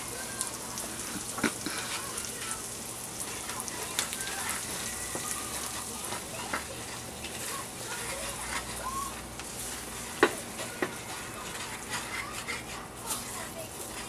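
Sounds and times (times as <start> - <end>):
onions sizzling in hot oil: 0.0 - 14.0
spoon knocking against pan: 10.2 - 11.1.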